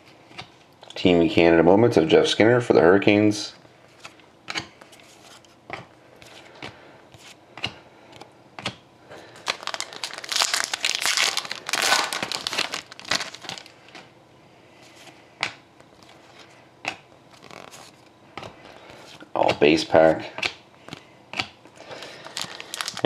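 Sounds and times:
foil wrapper tearing and crinkling: 9.3 - 13.8, 17.3 - 18.0, 21.9 - 23.0.

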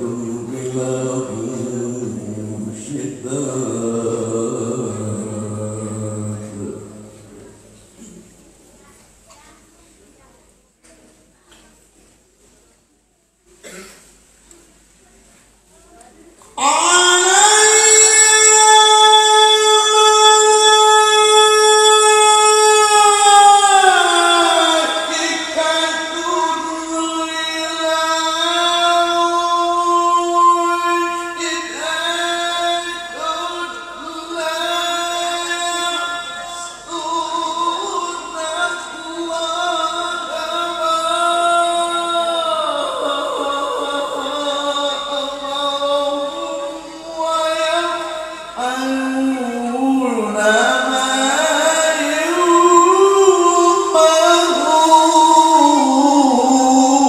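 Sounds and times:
man chanting melodically: 0.0 - 8.2, 16.6 - 57.0.

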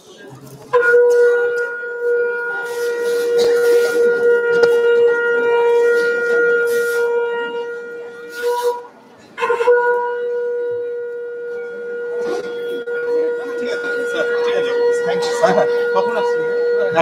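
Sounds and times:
wind instrument holding a note: 0.7 - 17.0.

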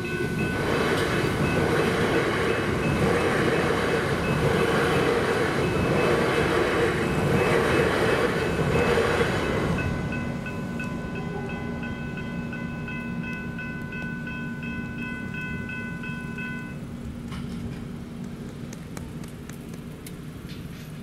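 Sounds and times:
level-crossing bells ringing: 0.0 - 3.2, 8.3 - 16.8
passing train rumble: 0.0 - 21.0.

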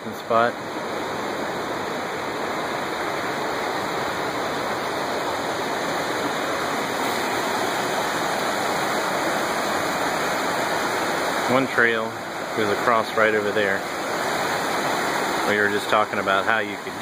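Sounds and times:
river rapids over boulders: 0.0 - 17.0.

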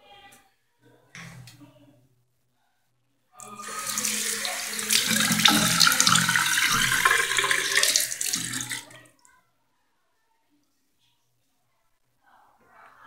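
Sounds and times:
running water: 3.4 - 9.1.

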